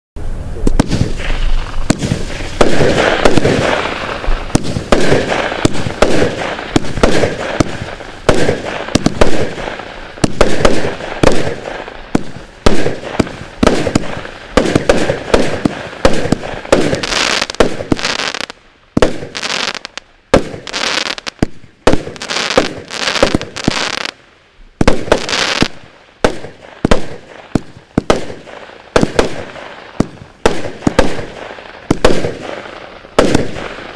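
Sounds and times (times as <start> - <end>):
firework bangs: 0.2 - 24.2, 24.8 - 33.9
firework launch thumps: 0.6 - 9.5.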